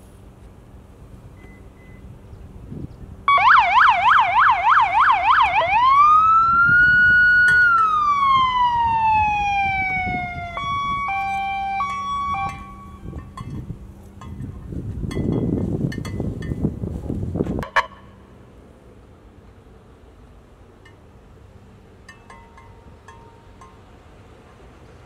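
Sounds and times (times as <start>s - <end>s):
emergency vehicle siren: 3.3s - 13.3s.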